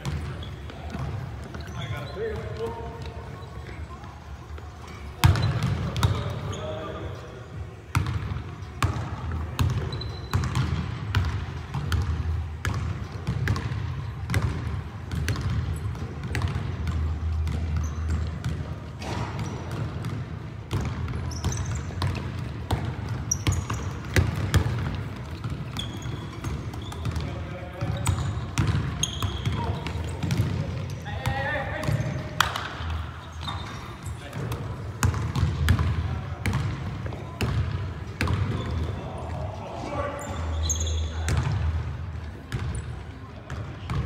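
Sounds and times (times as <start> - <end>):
sneaker squeaks on wood: 0.0 - 3.8, 9.6 - 10.7, 17.7 - 18.3, 21.1 - 22.2, 23.1 - 24.5, 25.4 - 31.0, 33.1 - 34.4, 40.0 - 41.4
basketball bouncing on wooden floor: 9.6 - 18.6, 19.4 - 30.6, 34.4 - 36.8.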